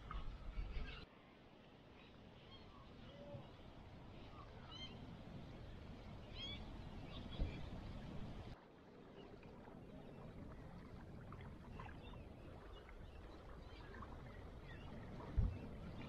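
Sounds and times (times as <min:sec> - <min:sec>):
small ripples lapping at shore: 0:01.9 - 0:16.0
faint bird chirps: 0:06.2 - 0:07.6.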